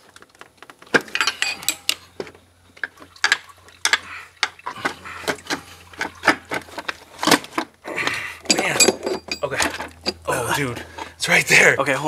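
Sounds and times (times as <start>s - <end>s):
metal clinks and rattles: 1.0s - 2.2s, 8.4s - 11.2s.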